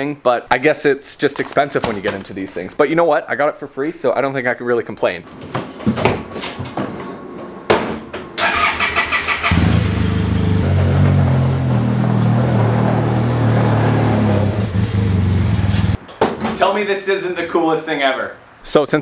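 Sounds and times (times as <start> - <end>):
engine starter cranking: 8.4 - 10.4
engine running steadily: 9.5 - 16.0.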